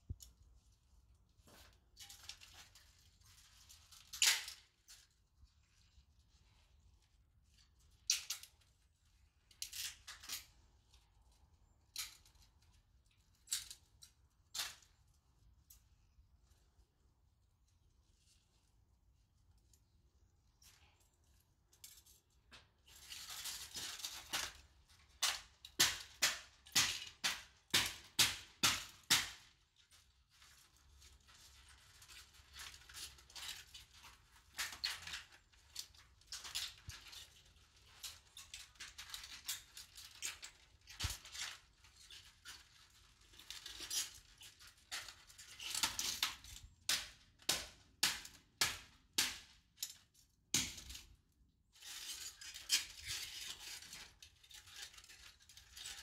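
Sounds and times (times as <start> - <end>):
plastic snapping and cracking: 3.9 - 5.0, 22.9 - 29.6, 31.9 - 51.0.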